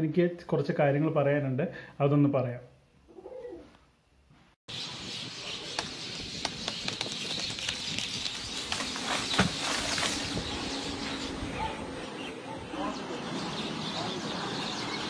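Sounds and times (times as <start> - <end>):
outdoor noise: 2.8 - 15.0
flock of birds calling: 4.7 - 15.0.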